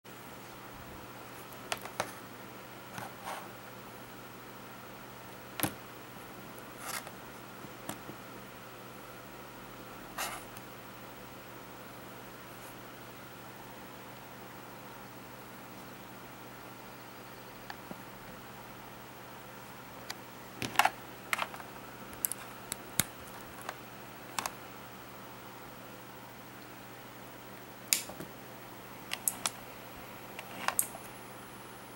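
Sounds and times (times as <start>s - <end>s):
faint steady hum: 0.1s - 31.9s
sharp click: 27.9s - 28.2s.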